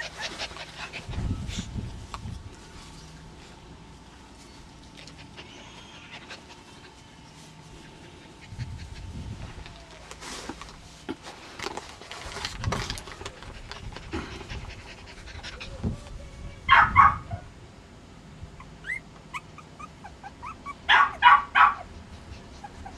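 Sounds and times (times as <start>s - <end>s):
dog panting: 0.0s - 1.3s, 13.3s - 15.8s.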